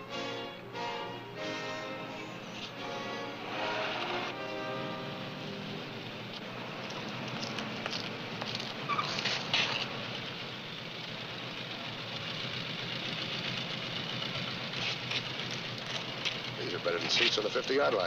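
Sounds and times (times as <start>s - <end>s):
motorcycle engine running: 5.0s - 18.0s.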